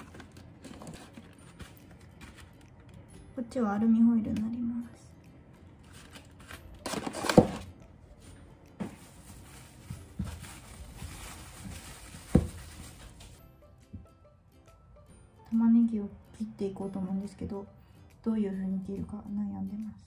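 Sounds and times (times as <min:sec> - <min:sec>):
plastic bag rustling: 0:00.0 - 0:02.7, 0:05.8 - 0:07.7, 0:08.8 - 0:13.4
box knocked onto worktop: 0:12.3 - 0:12.6.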